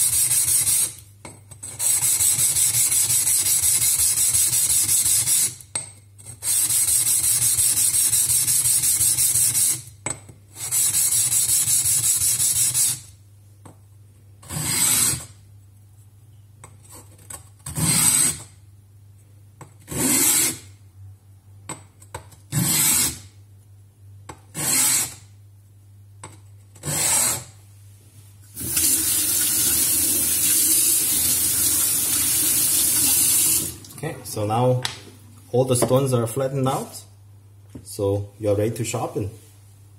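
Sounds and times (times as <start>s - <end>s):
sharpening stone scraping on plate: 1.5s - 5.6s, 14.4s - 15.3s, 19.9s - 20.6s, 22.5s - 23.2s, 24.5s - 25.2s, 26.8s - 27.5s.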